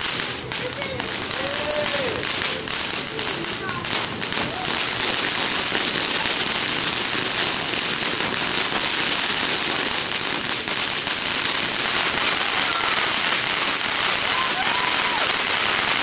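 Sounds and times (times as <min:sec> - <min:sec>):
fireworks hissing and crackling: 0:00.0 - 0:16.0
sharp firework crack: 0:00.0 - 0:16.0.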